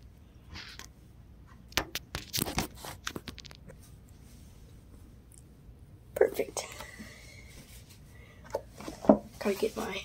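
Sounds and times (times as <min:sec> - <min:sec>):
rustling handling noise: 0:07.5 - 0:10.0.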